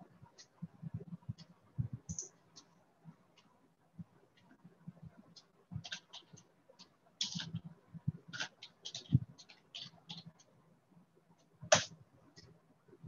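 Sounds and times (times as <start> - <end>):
small clicks and soft knocks: 0.2 - 10.6.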